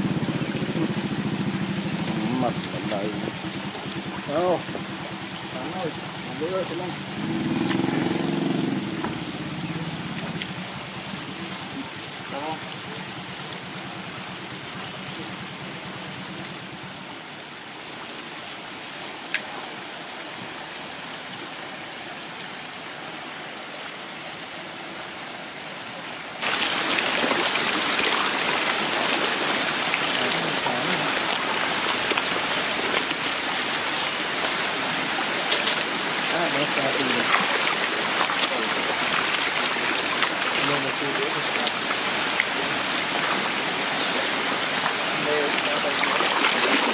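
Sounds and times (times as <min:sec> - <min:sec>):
fish splashing in pond water: 0:00.0 - 0:16.6, 0:26.4 - 0:46.9.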